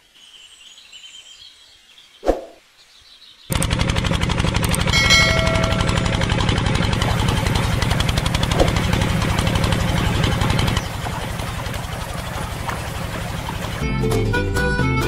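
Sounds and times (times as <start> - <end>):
pump engine chugging: 3.5 - 14.2
bell-like ding: 4.9 - 6.9.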